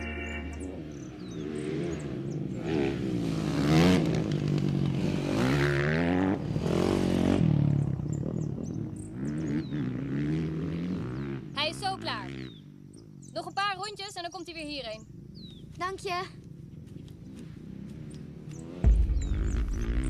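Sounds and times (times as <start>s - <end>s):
dirt bike engine revving: 0.0s - 13.0s, 17.2s - 20.0s.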